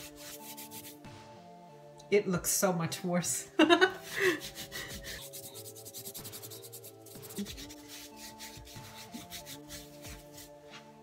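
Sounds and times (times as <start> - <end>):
soft background music: 0.0 - 11.0
cloth scrubbing pumpkin rind: 4.0 - 10.6.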